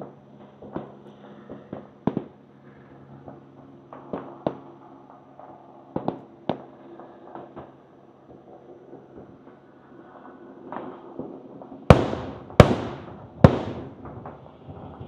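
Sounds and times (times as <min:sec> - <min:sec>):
steady low hum: 0:11.9 - 0:14.2
firework shells bursting: 0:11.9 - 0:14.5.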